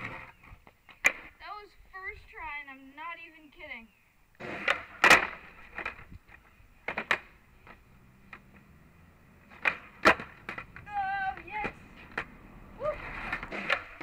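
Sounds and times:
skateboard knocks and clacks: 0:04.4 - 0:08.7, 0:09.5 - 0:14.0.

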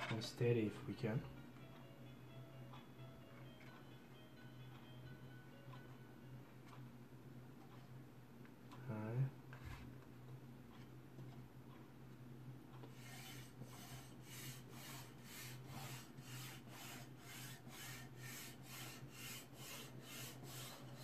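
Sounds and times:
low steady hum: 0:00.0 - 0:21.0
hands rubbing adhesive sheet: 0:12.9 - 0:21.0.

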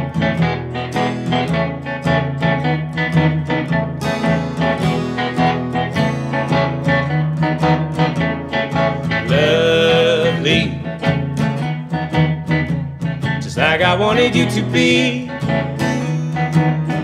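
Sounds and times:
strummed guitars: 0:00.0 - 0:17.0
person singing: 0:09.1 - 0:11.3, 0:13.3 - 0:16.2.

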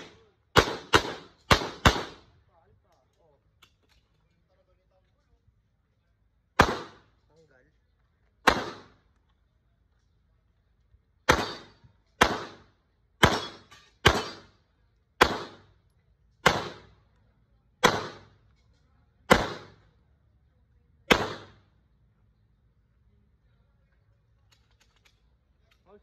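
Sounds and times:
pistol shots: 0:00.0 - 0:02.3, 0:06.6 - 0:07.1, 0:08.4 - 0:09.0, 0:11.2 - 0:14.5, 0:15.2 - 0:15.7, 0:16.4 - 0:17.0, 0:17.8 - 0:18.4, 0:19.2 - 0:19.9, 0:21.1 - 0:21.6.

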